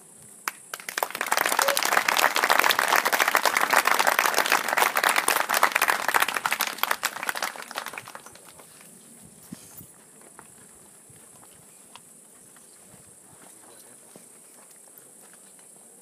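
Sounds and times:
audience clapping: 0:00.4 - 0:08.9.

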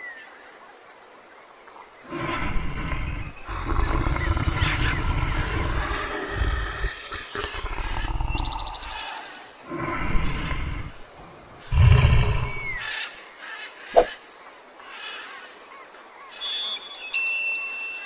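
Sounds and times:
birds chirping: 0:01.8 - 0:18.0
bear growling: 0:02.0 - 0:12.9.

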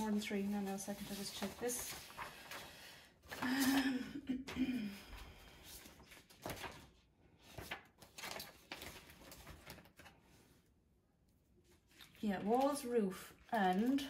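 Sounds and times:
rustling of handled things: 0:00.0 - 0:10.7.

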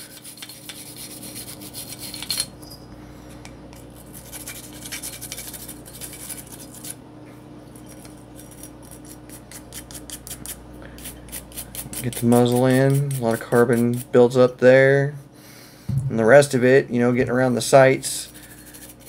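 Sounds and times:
brush scrubbing metal: 0:00.0 - 0:02.4, 0:08.4 - 0:14.1.

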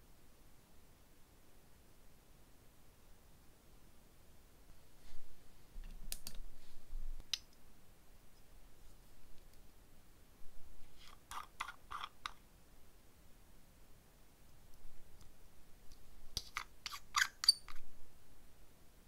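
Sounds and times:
fingernails clicking on plastic jars: 0:11.1 - 0:12.4, 0:16.4 - 0:17.8.

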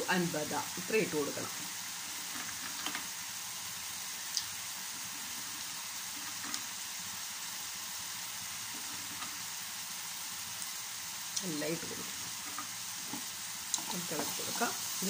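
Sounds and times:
food bubbling and sizzling in pan: 0:00.0 - 0:15.0.

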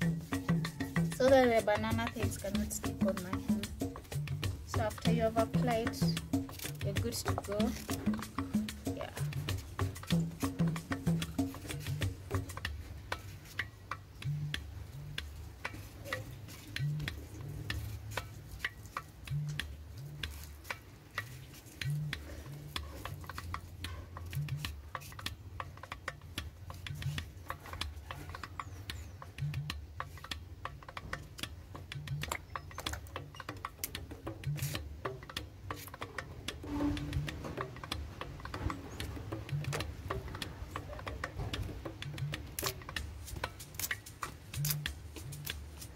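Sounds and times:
knife scraping banana peel: 0:42.5 - 0:45.9.

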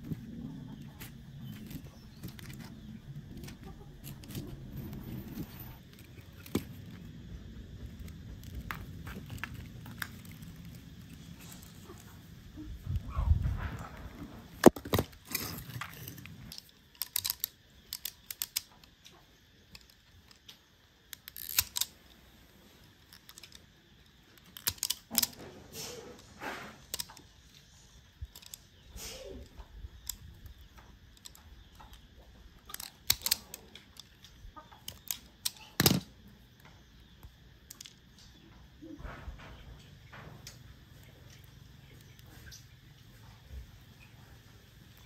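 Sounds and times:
wire stripper clamping and cutting: 0:21.1 - 0:21.9.

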